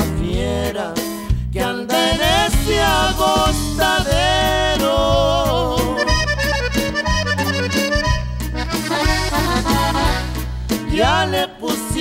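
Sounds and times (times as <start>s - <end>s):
electric bass: 0.0s - 12.0s
steady drum beat: 0.0s - 12.0s
accordion melody: 1.8s - 12.0s.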